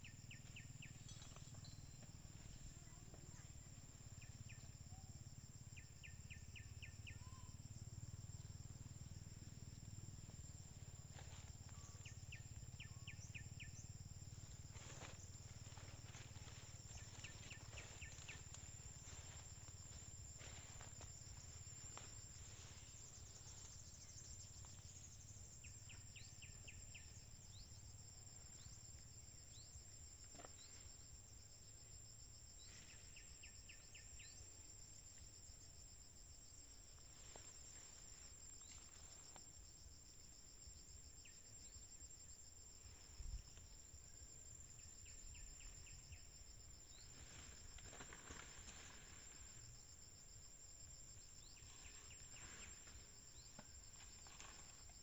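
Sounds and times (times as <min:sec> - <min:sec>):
insects chirping rapidly: 0:00.0 - 0:55.0
insects droning: 0:00.0 - 0:55.0.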